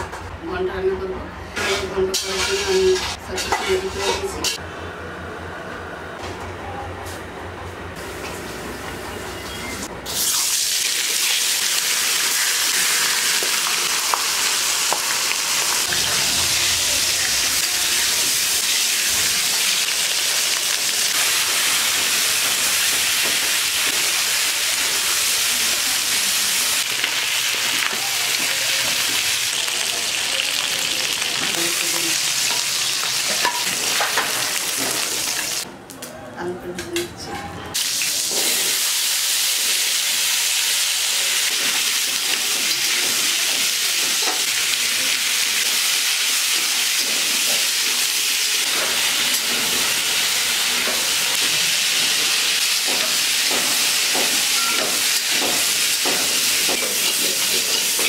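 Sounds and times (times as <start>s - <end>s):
spatula scraping a wok: 1.5s - 4.6s
fish frying in hot oil: 10.1s - 33.7s, 37.8s - 58.0s.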